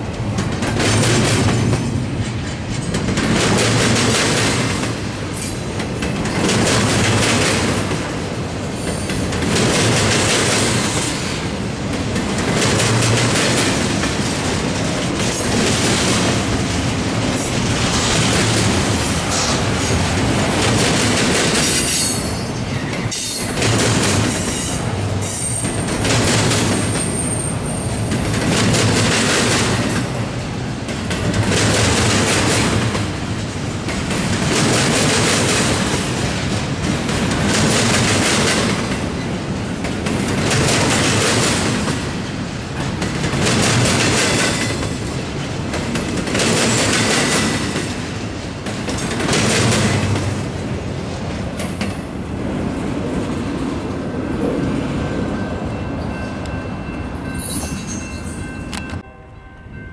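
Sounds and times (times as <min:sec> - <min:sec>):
train wheels clattering over rails: 0:00.0 - 0:59.0
high wheel squeal: 0:26.8 - 0:28.5.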